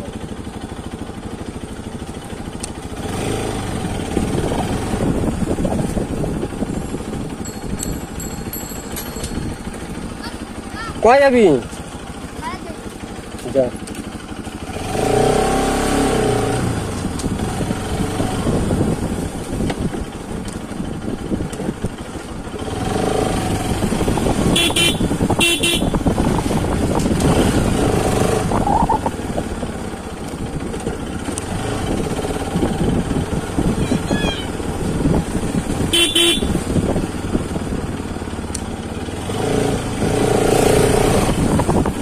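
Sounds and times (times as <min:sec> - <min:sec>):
motorcycle engine revving: 0:00.0 - 0:42.0
short horn beeps: 0:24.5 - 0:26.0, 0:35.9 - 0:36.6.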